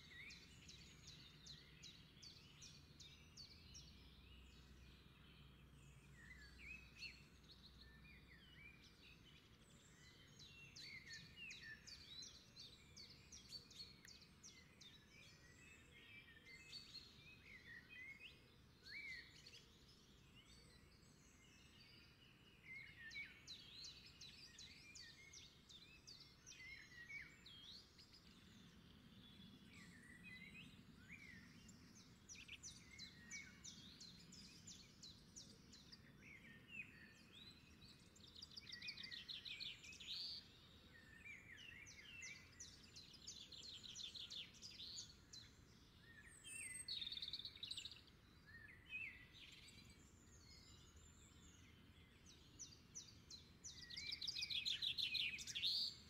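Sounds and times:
birds singing: 0.0 - 56.0.

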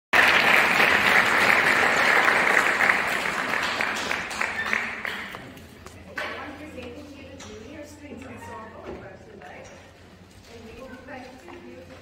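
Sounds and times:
audience applause: 0.1 - 5.6.

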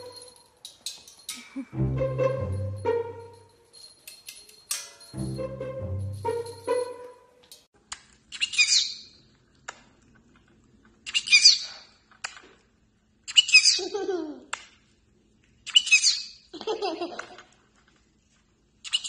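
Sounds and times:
music: 1.6 - 3.8, 5.0 - 7.7
parrot chirping: 8.4 - 9.1.

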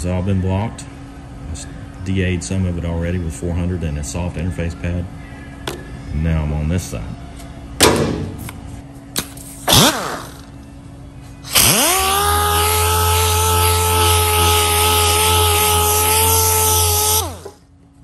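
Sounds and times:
air sander whining: 9.7 - 10.6, 11.4 - 17.7.

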